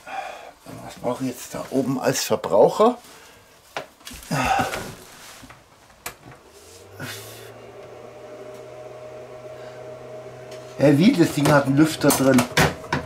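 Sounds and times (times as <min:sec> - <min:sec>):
cooling fan humming: 0:06.0 - 0:13.0.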